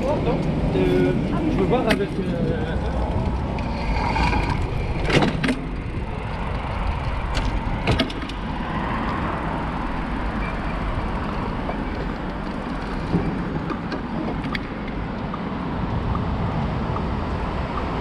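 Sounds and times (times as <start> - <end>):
bicycle riding rumble: 0.0 - 18.0
bicycle rattles: 1.5 - 15.2.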